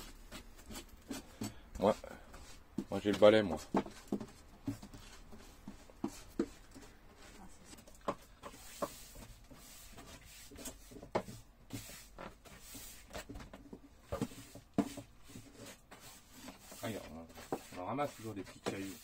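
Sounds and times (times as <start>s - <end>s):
broom sweeping floor: 0.0s - 19.0s.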